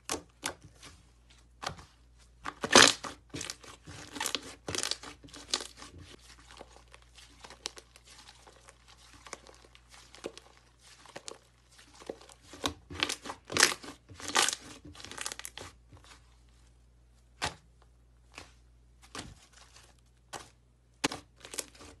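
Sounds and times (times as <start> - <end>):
slime kneaded with sticky pops: 0.0 - 16.3.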